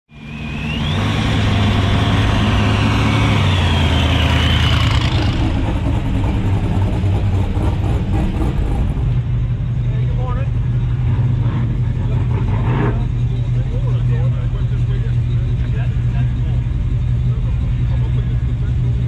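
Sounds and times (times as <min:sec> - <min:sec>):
high whine: 0:00.1 - 0:07.3
car engines rumbling: 0:00.1 - 0:19.0.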